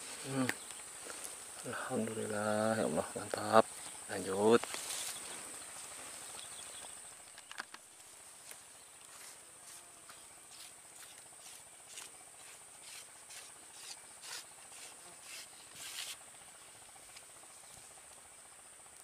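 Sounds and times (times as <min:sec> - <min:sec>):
insects droning: 0:00.0 - 0:19.0
short scraping rustles: 0:10.5 - 0:16.2.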